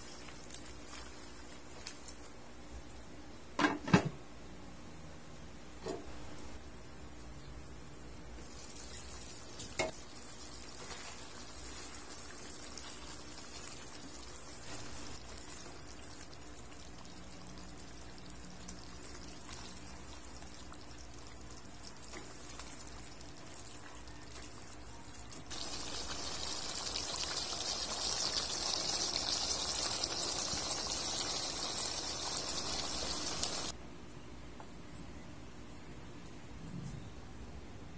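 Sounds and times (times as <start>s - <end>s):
sauce sizzling and bubbling: 8.4s - 33.8s.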